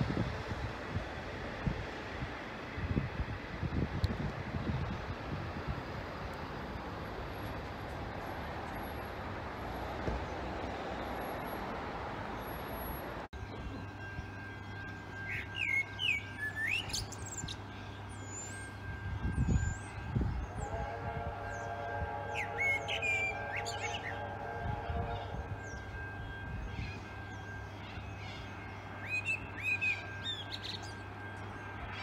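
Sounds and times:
wind on microphone: 0:02.8 - 0:05.9, 0:19.1 - 0:22.3.

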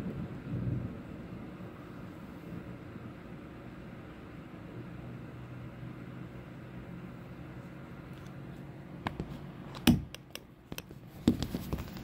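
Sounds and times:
steady low hum: 0:00.0 - 0:12.0
sharp knocks and clicks: 0:09.1 - 0:12.0.

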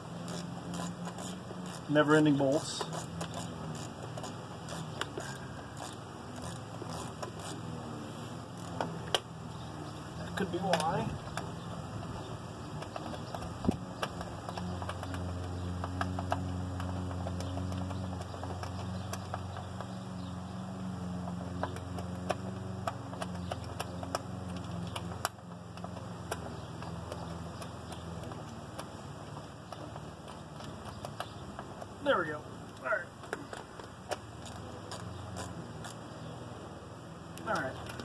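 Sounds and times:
hand tools clicking on metal: 0:00.0 - 0:32.0
low motor hum: 0:00.0 - 0:38.0.

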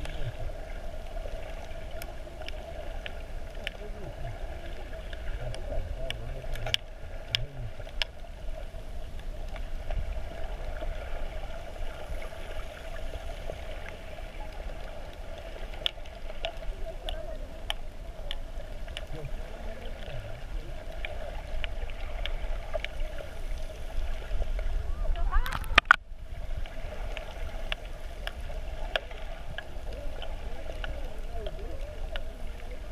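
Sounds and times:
underwater water rumble: 0:00.0 - 0:32.9
sharp clicks and crackles: 0:01.6 - 0:03.8, 0:04.7 - 0:08.3, 0:13.8 - 0:23.0, 0:25.4 - 0:26.0, 0:27.1 - 0:32.4.

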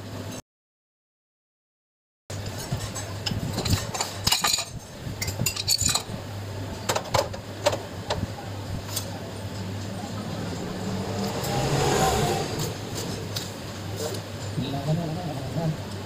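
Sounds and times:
metal tools clinking: 0:02.6 - 0:06.1
low hum: 0:07.9 - 0:14.5.

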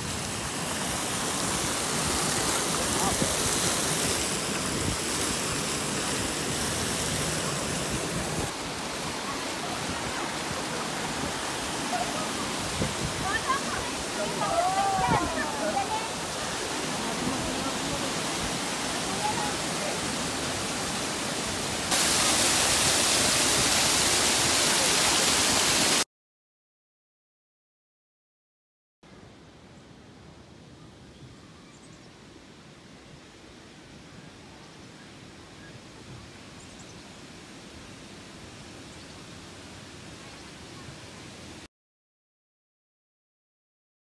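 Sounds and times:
water splashing from fountain: 0:00.0 - 0:26.0.

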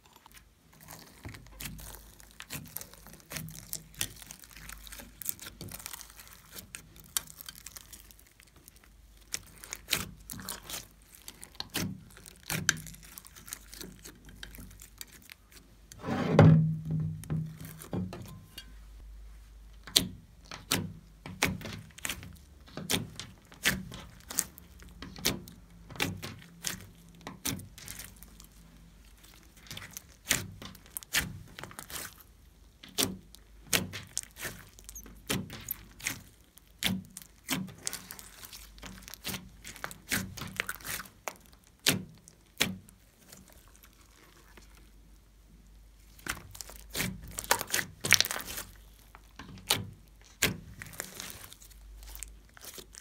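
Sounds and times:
slime squeezed with wet pops: 0:22.8 - 0:45.0, 0:46.0 - 0:53.0.

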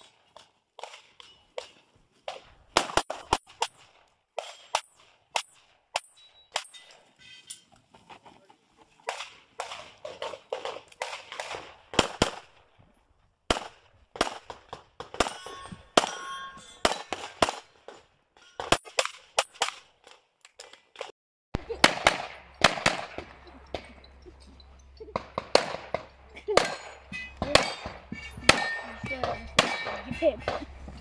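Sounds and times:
pistol shots: 0:00.8 - 0:06.7, 0:09.1 - 0:12.6, 0:13.5 - 0:16.2, 0:16.8 - 0:18.0, 0:21.8 - 0:23.4, 0:25.2 - 0:30.7.

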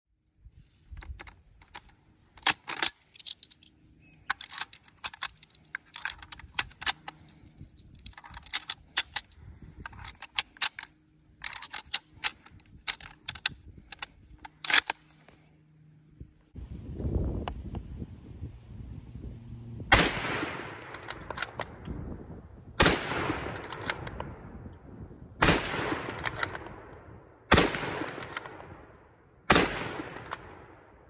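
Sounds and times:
cartridges clicking into rifle magazine: 0:01.0 - 0:15.2, 0:20.8 - 0:22.2, 0:22.8 - 0:30.6.

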